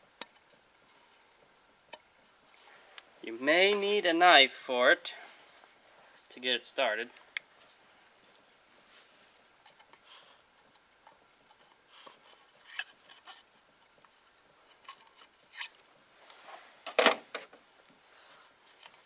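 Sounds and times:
knife scraping rubber ring: 0:11.4 - 0:15.8, 0:18.2 - 0:19.0.

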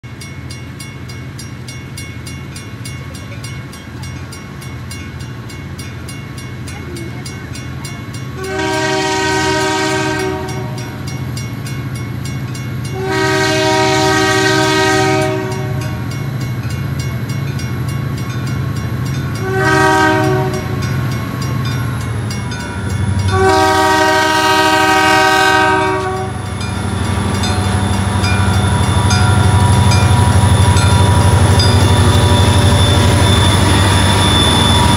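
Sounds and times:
low rumble of locomotives: 0:00.0 - 0:34.9
train air horn blasts: 0:08.4 - 0:11.0, 0:12.9 - 0:16.0, 0:19.4 - 0:20.9, 0:23.3 - 0:27.0.

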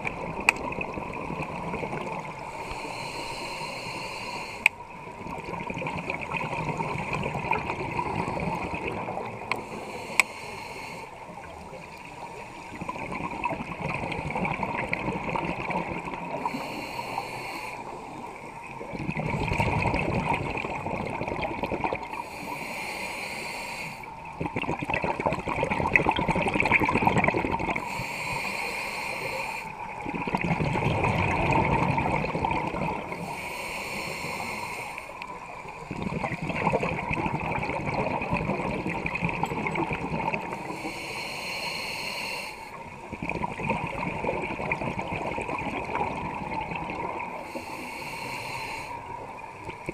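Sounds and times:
hissing regulator inhalations: 0:02.2 - 0:04.9, 0:08.2 - 0:11.4, 0:16.3 - 0:18.6, 0:22.1 - 0:24.3, 0:27.8 - 0:30.0, 0:33.0 - 0:35.6, 0:40.4 - 0:43.1, 0:47.2 - 0:49.9
bubbling exhalations: 0:18.8 - 0:22.2, 0:24.3 - 0:27.9, 0:30.0 - 0:33.2, 0:35.9 - 0:40.7, 0:43.1 - 0:47.5.

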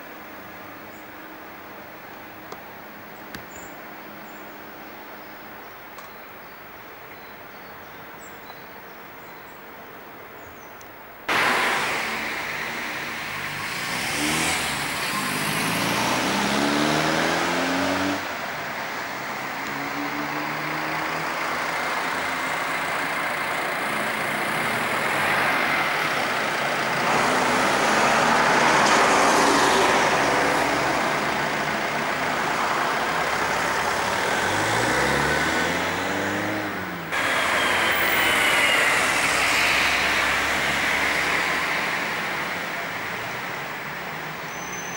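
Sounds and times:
tyre and road noise: 0:10.9 - 0:44.9
car engine accelerating: 0:11.3 - 0:18.4, 0:19.2 - 0:44.4.

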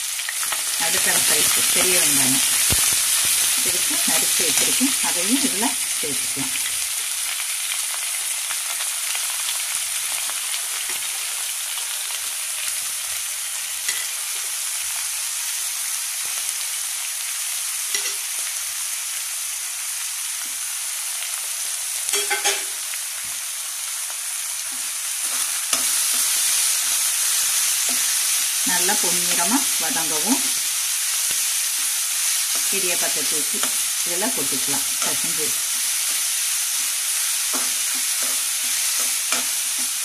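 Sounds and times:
onions sizzling in oil: 0:00.0 - 0:40.0
spoon clinking against pan: 0:22.1 - 0:22.7.

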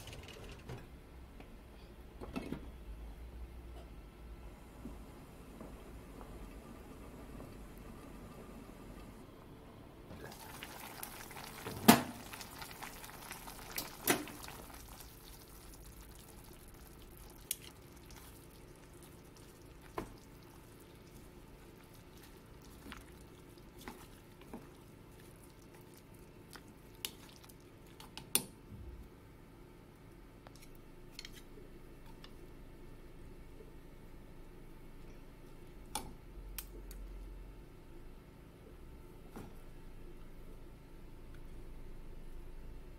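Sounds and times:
stew bubbling in pot: 0:10.1 - 0:28.5.

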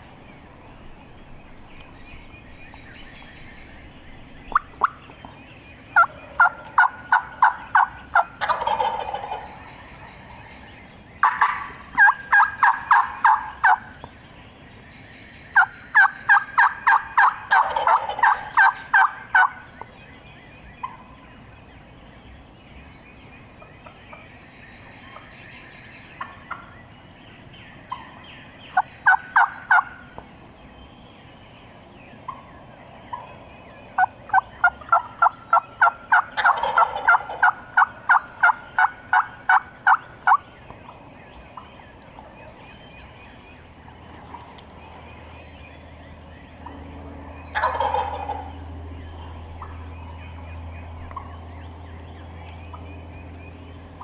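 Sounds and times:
turkeys yelping: 0:04.4 - 0:10.6, 0:11.2 - 0:14.0, 0:15.6 - 0:19.8, 0:20.8 - 0:21.1, 0:26.2 - 0:26.7, 0:27.9 - 0:30.2, 0:32.2 - 0:32.5, 0:33.1 - 0:45.4, 0:46.1 - 0:54.0
turkey gobbling: 0:06.0 - 0:10.3, 0:11.2 - 0:13.9, 0:15.6 - 0:19.6, 0:20.8 - 0:21.1, 0:26.2 - 0:26.7, 0:27.9 - 0:30.0, 0:34.0 - 0:41.0, 0:47.4 - 0:48.6.

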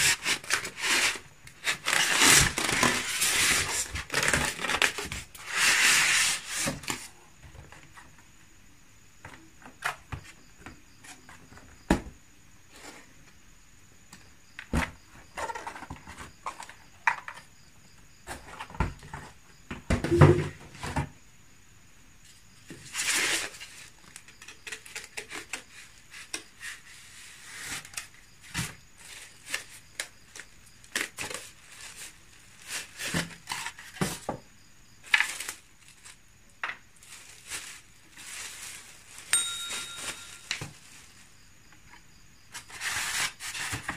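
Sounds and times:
polystyrene packaging rustling: 0:35.0 - 0:36.2, 0:36.9 - 0:41.3.

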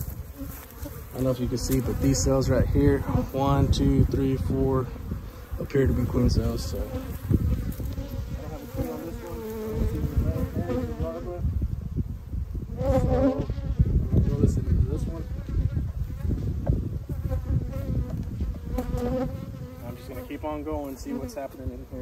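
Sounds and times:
honeybees buzzing: 0:00.0 - 0:22.0
wooden hive frames knocking: 0:15.5 - 0:19.5.

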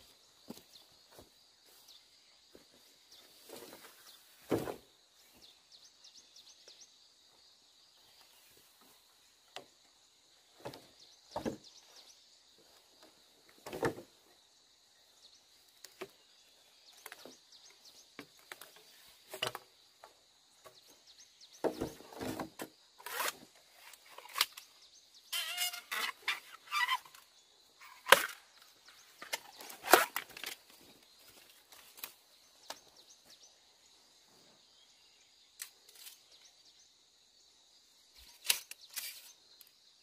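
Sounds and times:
bamboo poles knocking together: 0:17.0 - 0:20.9, 0:27.9 - 0:30.8.

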